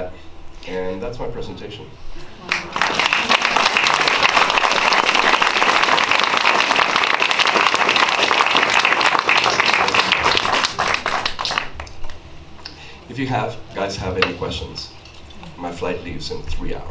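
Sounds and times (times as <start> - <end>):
audience applauding: 2.4 - 12.1.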